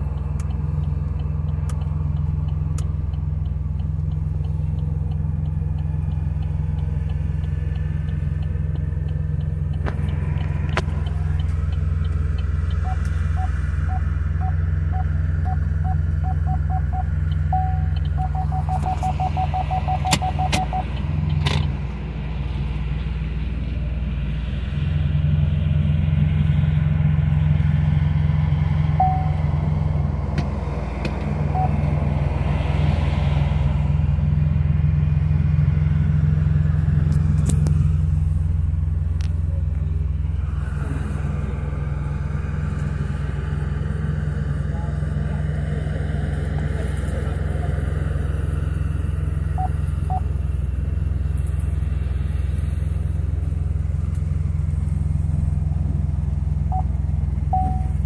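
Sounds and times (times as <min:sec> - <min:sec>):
sharp clicks: 0:00.0 - 0:13.5, 0:17.0 - 0:21.7
car engine low hum: 0:00.0 - 0:58.0
parking sensor beeping: 0:08.1 - 0:21.0, 0:29.0 - 0:29.5, 0:31.5 - 0:31.8, 0:49.5 - 0:50.3, 0:56.7 - 0:58.0.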